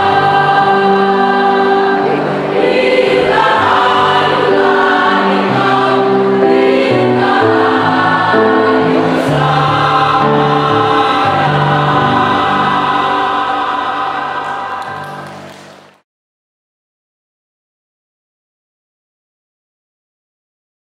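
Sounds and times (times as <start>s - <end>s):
mixed choir singing in harmony: 0.0s - 16.0s.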